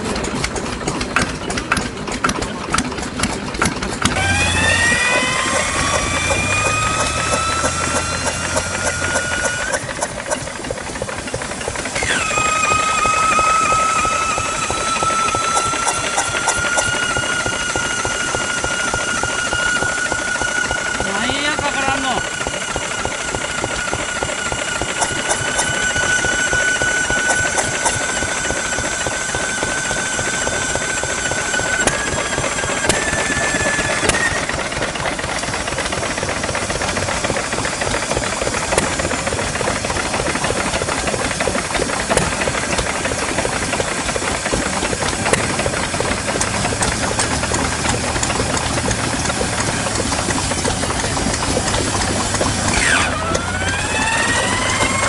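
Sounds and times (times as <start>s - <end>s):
diesel engine knocking: 0.0s - 55.0s
thin whistling tone: 12.0s - 21.3s, 25.0s - 34.5s.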